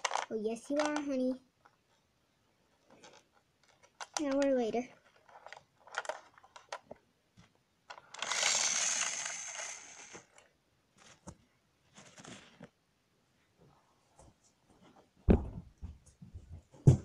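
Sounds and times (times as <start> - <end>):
plastic toys clicking and rustling: 0.0 - 1.8, 2.8 - 7.0, 7.9 - 11.3.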